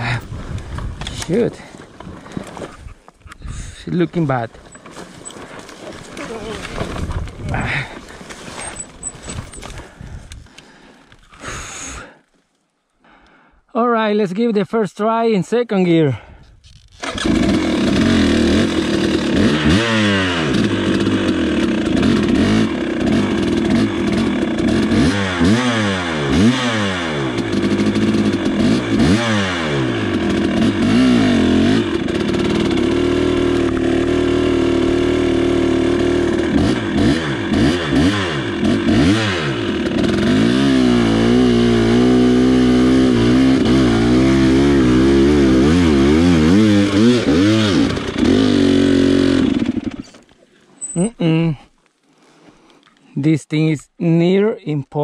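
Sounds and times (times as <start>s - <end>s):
motorcycle engine revving: 17.0s - 51.4s.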